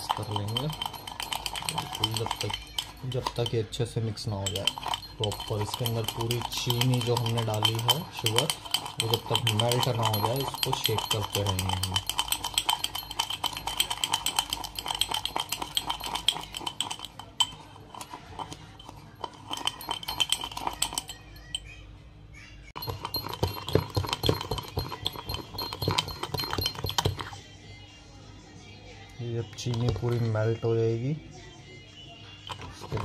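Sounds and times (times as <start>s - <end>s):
spoon clinking against glass: 0.0s - 21.8s, 22.8s - 27.4s, 29.6s - 30.6s, 32.5s - 33.0s.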